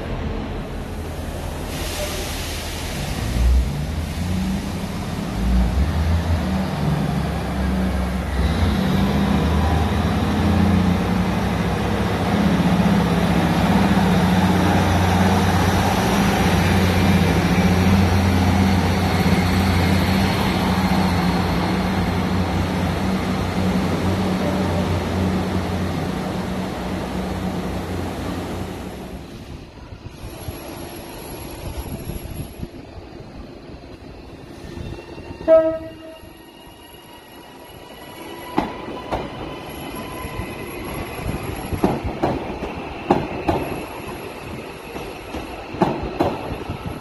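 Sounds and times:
diesel train engines humming: 0.0s - 37.7s.

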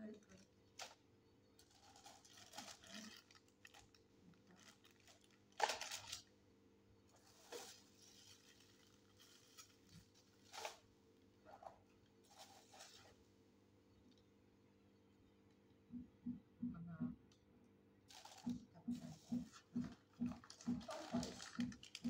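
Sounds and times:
faint steady hum: 0.0s - 22.0s
plastic packaging crinkling: 1.6s - 6.3s, 7.2s - 10.9s, 18.1s - 18.6s, 19.5s - 22.0s.

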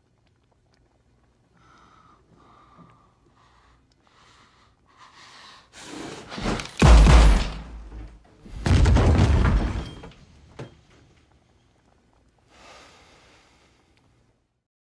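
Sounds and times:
booming pistol shots: 6.8s - 7.9s.

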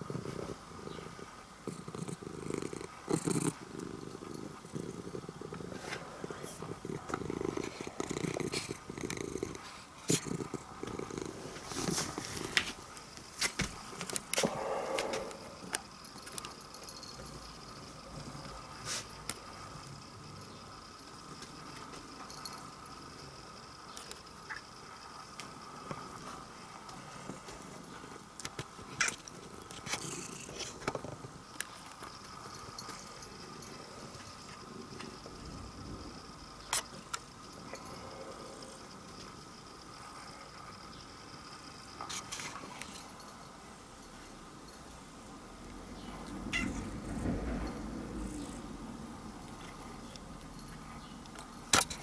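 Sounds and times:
cat purring: 0.0s - 13.0s, 28.8s - 39.4s, 45.6s - 51.3s
rustles and light clicks: 5.3s - 14.5s.

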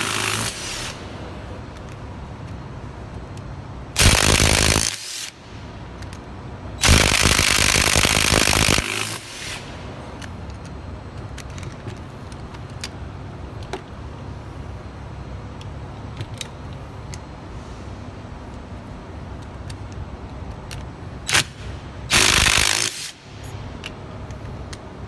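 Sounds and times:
socket and bolts clicking: 19.3s - 20.9s.

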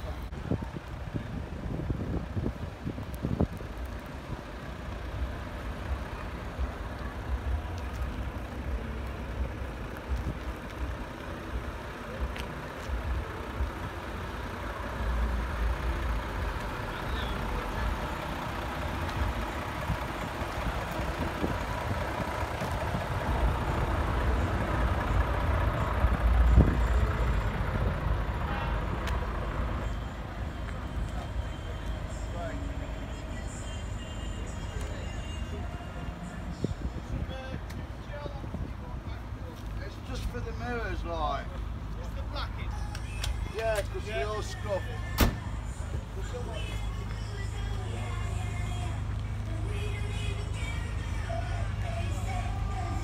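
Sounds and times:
heavy truck engines rumbling: 0.0s - 53.0s.

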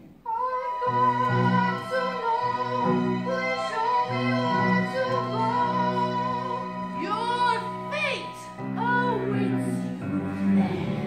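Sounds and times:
musical accompaniment: 0.0s - 11.0s
soprano singing operatic high note: 0.3s - 9.8s.

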